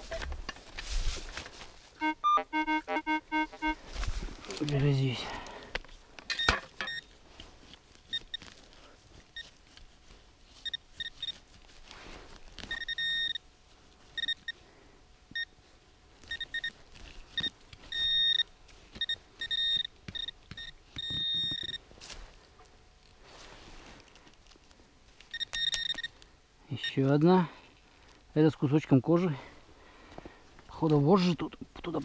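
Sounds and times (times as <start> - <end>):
metal detector beeping: 2.0 - 3.8, 6.3 - 7.1, 8.1 - 8.5, 10.6 - 11.4, 12.7 - 13.4, 14.2 - 14.6, 16.3 - 16.8, 17.4 - 21.8, 25.3 - 26.2.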